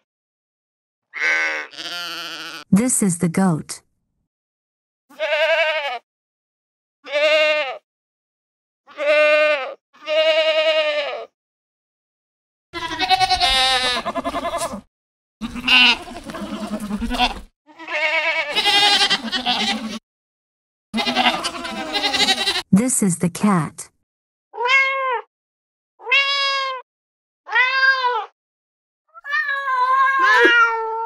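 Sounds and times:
goat bleating: 1.1 - 2.7, 5.1 - 6.0, 7.0 - 7.8, 8.9 - 11.3, 12.8 - 20.0, 21.0 - 22.7.

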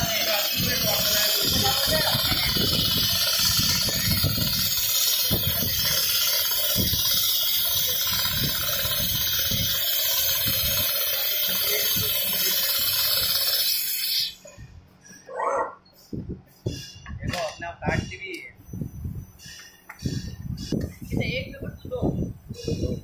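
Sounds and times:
sewing machine hissing rush: 0.0 - 14.4.

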